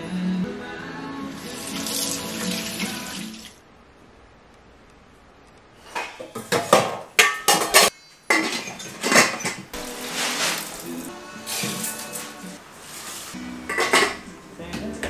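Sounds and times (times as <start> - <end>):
metal pot and lid clattering: 6.2 - 10.6, 13.6 - 14.3.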